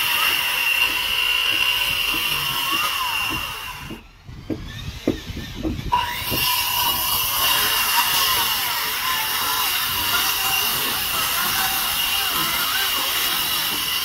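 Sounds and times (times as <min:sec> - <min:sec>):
circular saw whine cutting timber: 0:00.0 - 0:14.0
knocks: 0:00.9 - 0:06.6.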